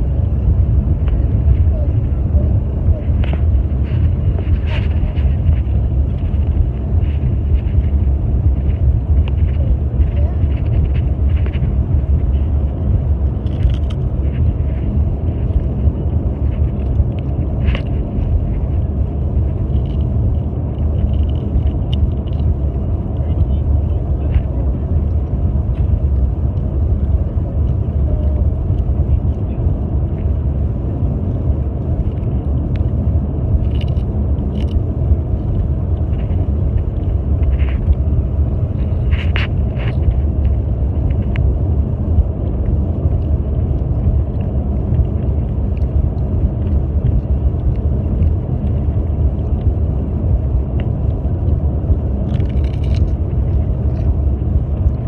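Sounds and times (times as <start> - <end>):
car cabin road and engine rumble: 0.0 - 55.0.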